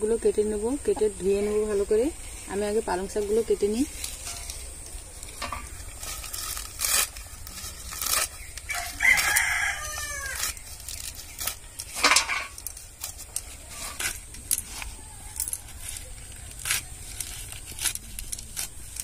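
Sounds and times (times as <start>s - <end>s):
blade snapping through stems: 4.0s - 14.7s
rooster crowing: 8.7s - 10.6s.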